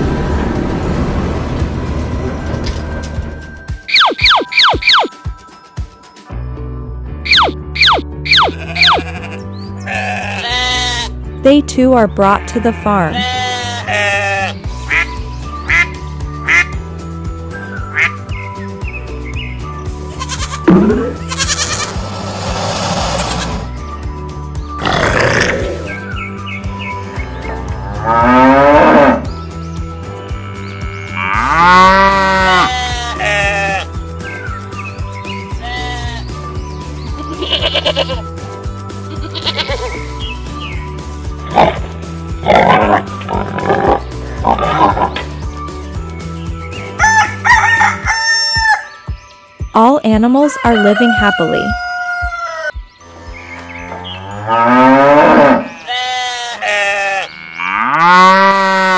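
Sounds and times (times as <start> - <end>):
light background music: 0.3 - 58.9
sheep bleating: 8.3 - 11.2, 12.3 - 14.6, 20.2 - 22.0, 30.4 - 34.0, 35.6 - 36.3, 37.2 - 38.3, 39.1 - 39.9, 54.5 - 58.9
cows mooing: 27.5 - 29.3, 30.3 - 33.9, 41.5 - 45.2, 53.1 - 58.9
rooster crowing: 47.0 - 48.9, 50.5 - 52.8.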